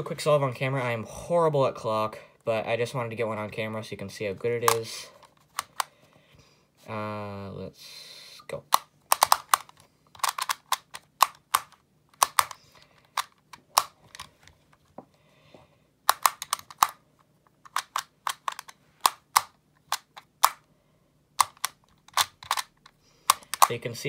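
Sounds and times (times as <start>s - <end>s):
puzzle clicking: 4.6s - 5.9s, 8.6s - 14.6s, 16.0s - 20.7s, 21.4s - 23.9s.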